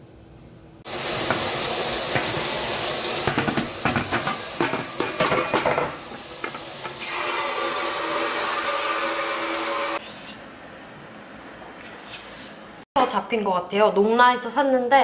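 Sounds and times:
water falling on steamer insert: 0.9s - 7.0s
tap running into metal sink: 1.2s - 7.1s
metallic knocks and clatter: 3.2s - 6.6s.

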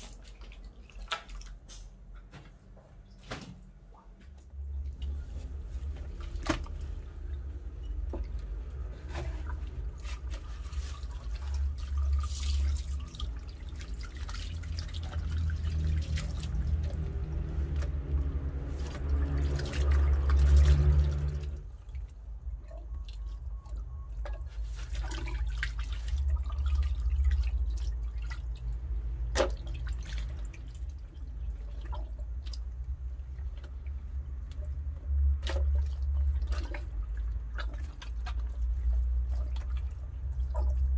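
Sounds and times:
wet handling sounds: 0.0s - 40.9s
water running from a hose: 10.5s - 21.6s.

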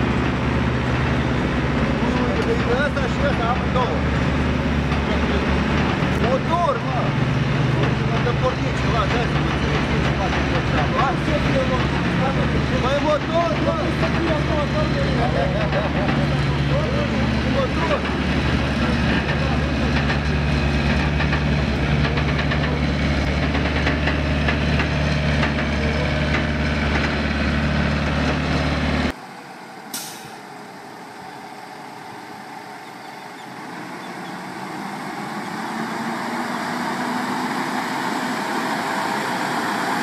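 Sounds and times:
loud diesel drone: 0.0s - 40.0s
truck engines pulling through: 0.0s - 40.0s
short sharp hiss or click: 29.9s - 30.4s.

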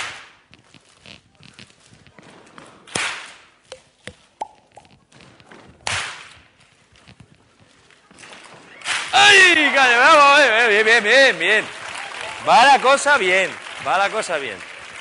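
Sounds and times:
loud ensemble hand clap: 10.3s - 15.0s.

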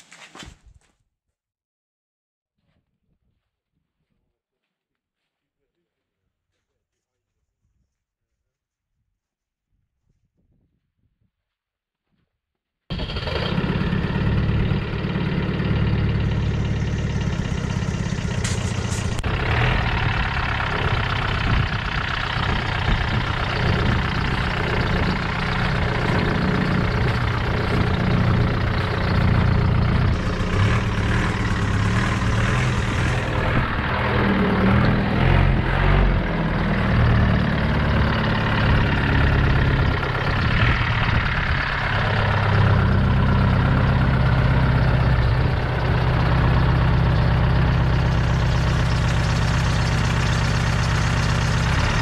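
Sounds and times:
car engine running: 12.9s - 52.0s.

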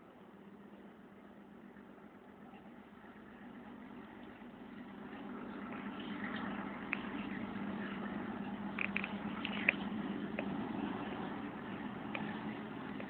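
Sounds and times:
steady low hum: 0.0s - 13.0s
scratching and rustling in dry soil: 3.9s - 13.0s
sharp ticks: 8.8s - 10.6s.

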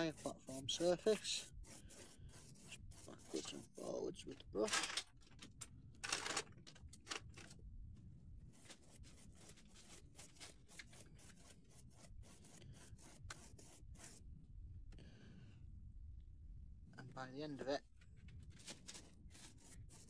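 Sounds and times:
paintbrush scratching on card: 0.0s - 4.7s, 8.4s - 14.4s, 18.3s - 20.0s.

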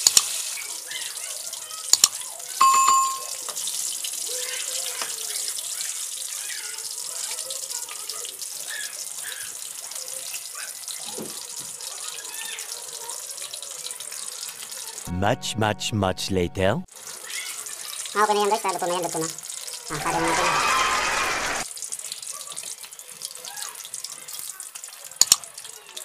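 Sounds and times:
fish sizzling in hot oil: 0.0s - 2.6s, 3.2s - 15.1s, 16.9s - 19.9s, 20.6s - 26.0s
short ringing tone: 2.6s - 3.4s.

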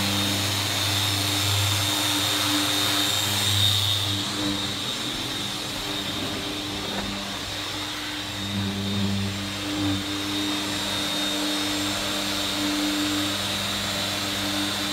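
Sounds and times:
dust extractor and floor sanders: 0.0s - 14.9s.

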